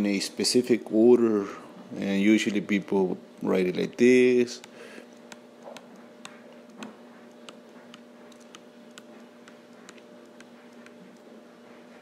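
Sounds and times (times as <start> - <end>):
faint steady hum: 0.0 - 12.0
stylus tapping on tablet screen: 4.6 - 11.0.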